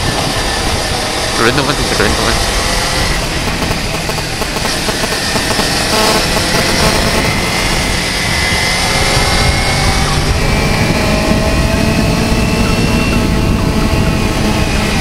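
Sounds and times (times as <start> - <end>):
motorcycle engine running: 0.0 - 15.0
wind and road noise: 0.0 - 15.0.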